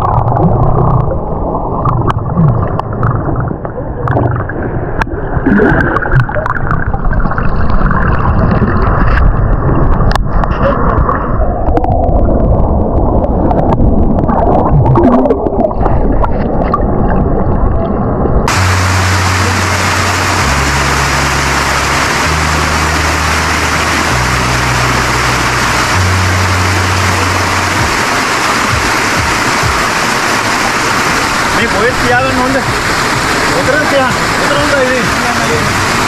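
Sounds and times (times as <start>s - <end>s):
underwater gurgling and churning: 0.0s - 36.0s
low bass line: 8.3s - 36.0s
small water cascade: 18.4s - 36.0s
stream rushing: 18.5s - 36.0s.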